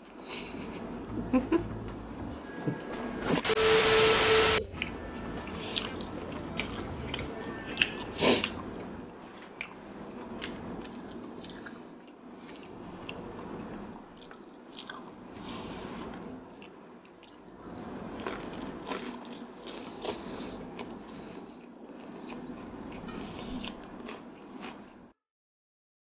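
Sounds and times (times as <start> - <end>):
close chewing and lip smacks: 9.6 - 15.1, 16.6 - 22.7.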